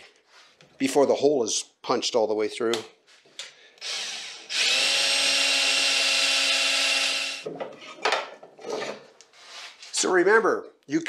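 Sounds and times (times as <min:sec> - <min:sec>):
cordless drill running: 0:03.8 - 0:07.4.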